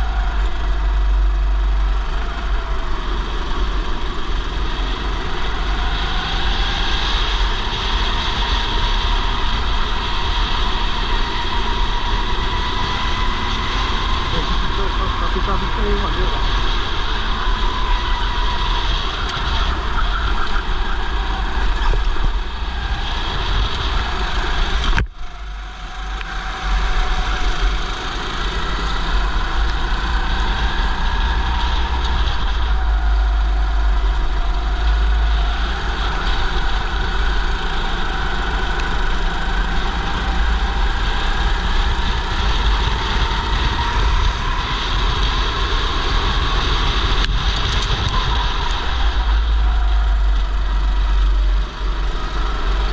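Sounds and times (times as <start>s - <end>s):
racing kart engine: 0.0s - 52.9s
wind on helmet: 16.2s - 52.9s.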